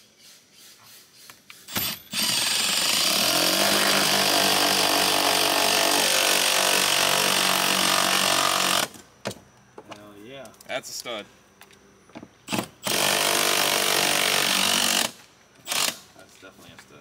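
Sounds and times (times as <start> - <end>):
cordless drill boring into wood: 1.7 - 9.0, 12.5 - 16.0.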